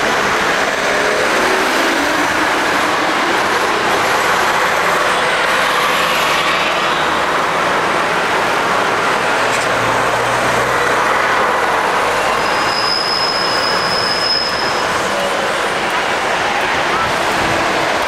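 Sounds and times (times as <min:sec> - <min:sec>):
bus diesel engines humming: 0:00.0 - 0:18.0
heavy street traffic: 0:00.0 - 0:18.0
thin high squeal: 0:12.3 - 0:15.0.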